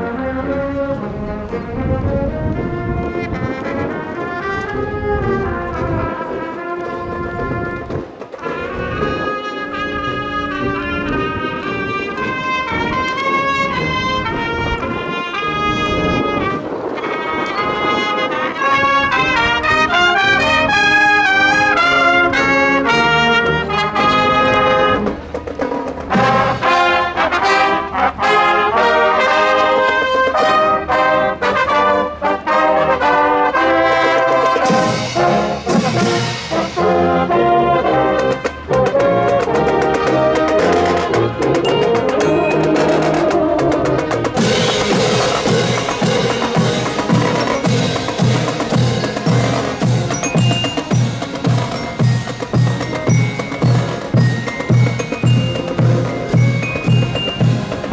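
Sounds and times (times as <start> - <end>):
marching band brass playing: 0.0 - 57.9
percussion strikes: 24.4 - 27.6, 34.0 - 57.9.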